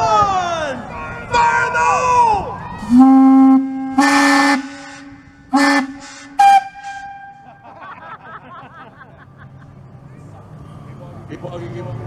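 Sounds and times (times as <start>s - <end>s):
air horn blowing: 2.8s - 7.6s
hissy air horn blasts: 2.9s - 7.5s.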